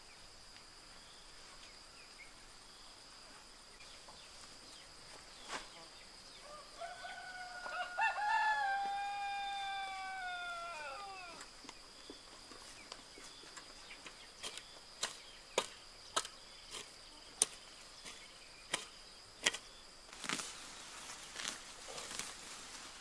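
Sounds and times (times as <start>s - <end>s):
high insect drone: 0.0s - 23.0s
rooster crowing: 6.4s - 11.5s
hoe chopping into soil: 14.4s - 20.5s
weeds rustling: 20.1s - 23.0s.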